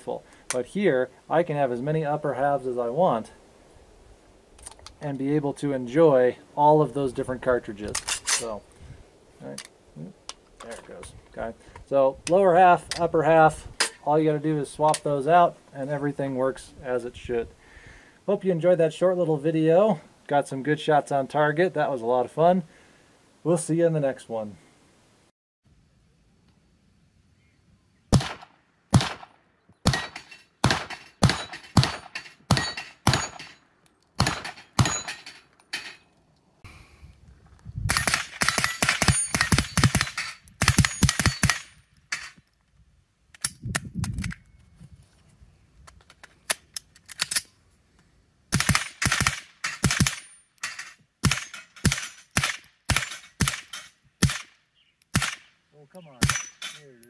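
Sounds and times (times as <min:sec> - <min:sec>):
rifle gunshots: 0:28.1 - 0:33.4, 0:34.2 - 0:35.1, 0:37.9 - 0:41.7, 0:48.5 - 0:50.2, 0:51.2 - 0:54.5, 0:55.1 - 0:55.5, 0:56.2 - 0:56.6.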